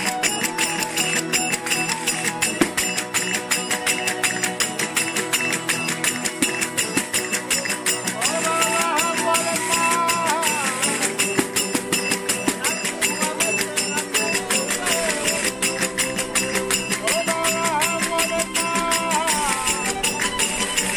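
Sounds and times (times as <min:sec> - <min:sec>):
guitars strummed fast: 0:00.0 - 0:20.9
hand cymbals and tambourine clashing: 0:00.0 - 0:20.9
man singing: 0:08.2 - 0:11.3, 0:12.5 - 0:19.9.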